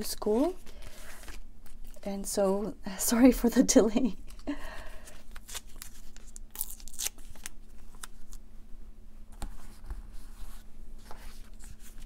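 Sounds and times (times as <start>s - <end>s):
tape peeling off backing: 5.3s - 8.4s.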